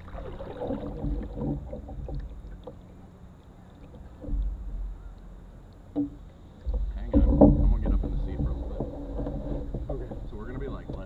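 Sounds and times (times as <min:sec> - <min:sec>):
paddle and water sounds: 0:00.0 - 0:11.0
steady low rumble: 0:00.0 - 0:11.0
low bump: 0:06.0 - 0:11.0.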